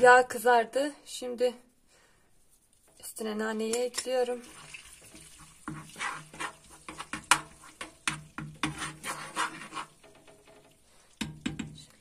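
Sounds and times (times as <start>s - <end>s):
metal spoon scraping pan: 2.8s - 10.7s.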